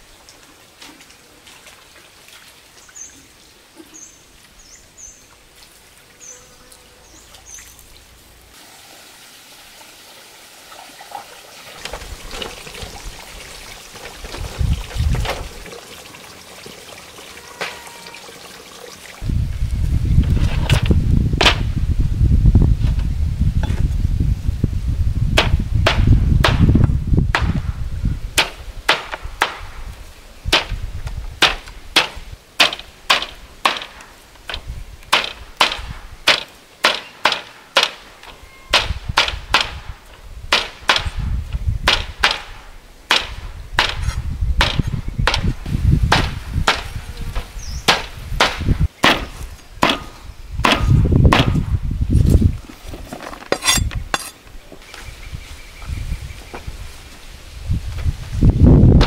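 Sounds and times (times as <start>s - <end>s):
machete chopping herbs: 47.9s - 51.6s.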